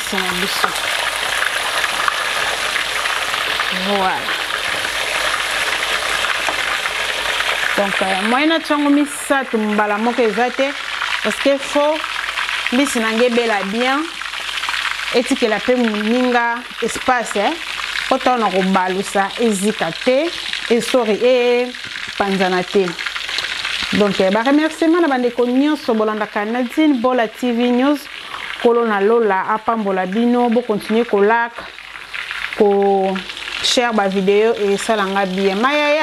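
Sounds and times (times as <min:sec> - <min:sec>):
fish sizzling in hot oil: 0:00.0 - 0:36.0.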